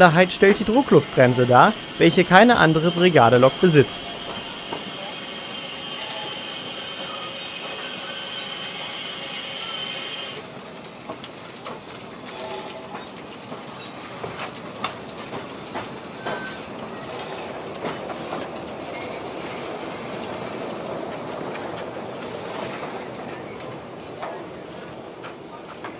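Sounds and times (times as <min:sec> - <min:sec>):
steam hiss: 0:00.0 - 0:20.6, 0:22.1 - 0:23.2
wheels clicking over track: 0:10.3 - 0:25.9.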